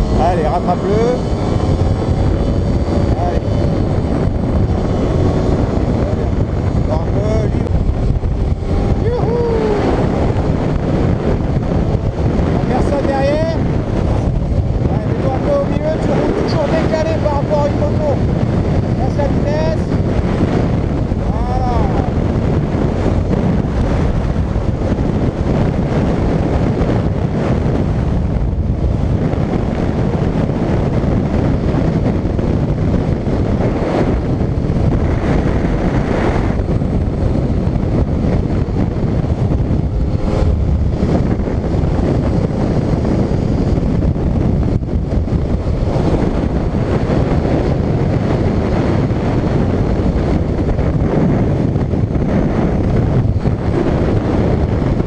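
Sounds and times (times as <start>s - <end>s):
motorcycle engine cruising: 0.0s - 55.0s
wind buffeting microphone: 0.0s - 55.0s.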